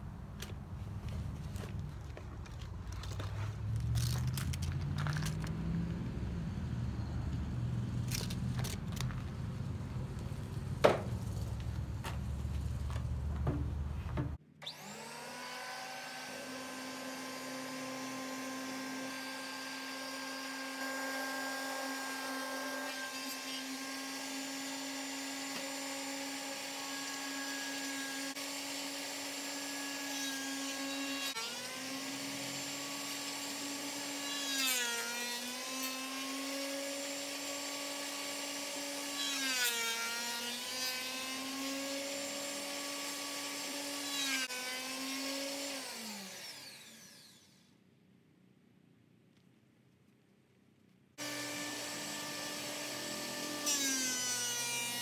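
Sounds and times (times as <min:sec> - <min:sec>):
knock: 0:10.8 - 0:11.1, 0:13.4 - 0:14.4
planer motor whining: 0:51.2 - 0:54.5.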